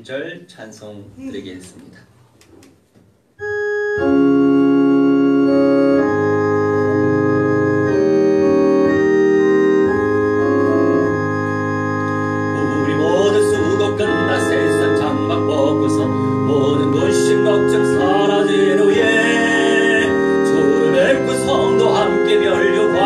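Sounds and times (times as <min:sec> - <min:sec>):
keyboard organ chords: 0:03.4 - 0:23.0
people singing: 0:12.6 - 0:23.0.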